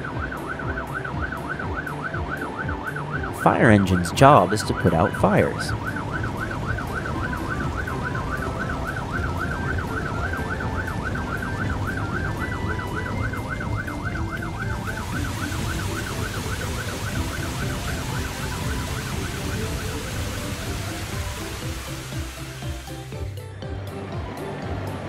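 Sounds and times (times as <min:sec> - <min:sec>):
fire engine siren warbling: 0:00.0 - 0:23.4
water spraying from hose: 0:05.6 - 0:23.4.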